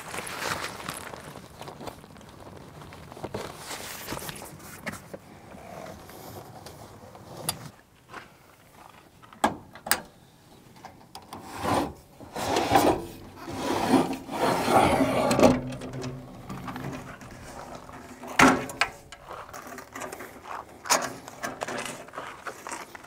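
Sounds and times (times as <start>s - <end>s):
tent cover rubbing and creaking: 3.2s - 4.8s, 11.6s - 18.3s.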